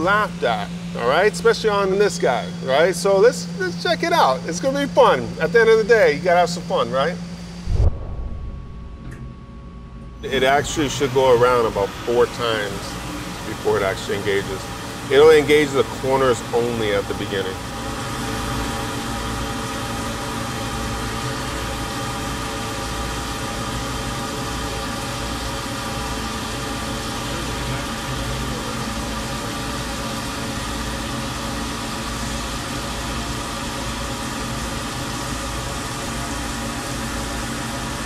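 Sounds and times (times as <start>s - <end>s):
milling machine spindle running: 10.2s - 38.0s.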